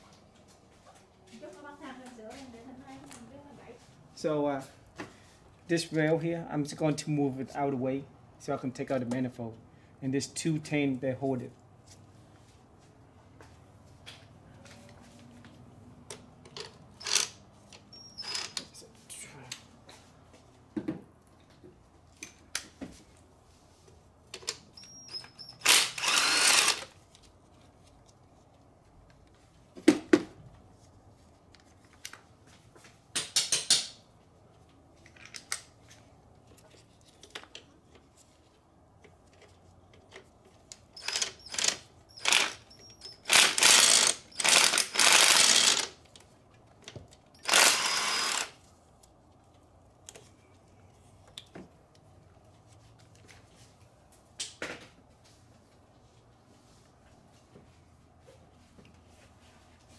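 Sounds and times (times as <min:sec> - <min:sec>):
ratchet wrench clicking: 0:17.0 - 0:17.4, 0:41.0 - 0:45.9, 0:47.4 - 0:48.5.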